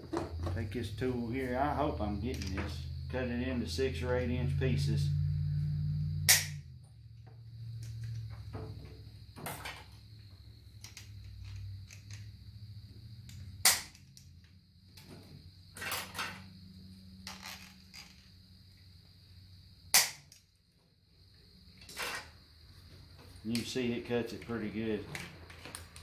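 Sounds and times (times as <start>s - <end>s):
sharp loud snaps: 6.2s - 6.6s, 13.6s - 14.0s, 19.9s - 20.4s.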